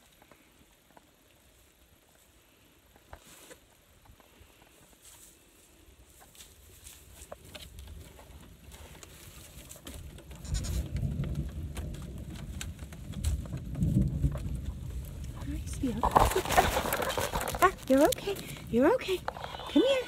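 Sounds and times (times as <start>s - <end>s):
goat kids bleating: 10.4s - 10.8s
microphone handling rumble: 10.4s - 20.0s.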